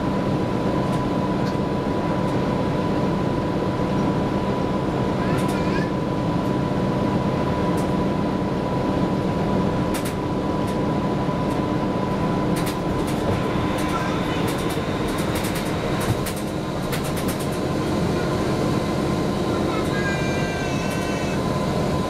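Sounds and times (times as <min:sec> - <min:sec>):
bus engine drone: 0:00.0 - 0:22.0
clicks and rattles: 0:12.5 - 0:17.6.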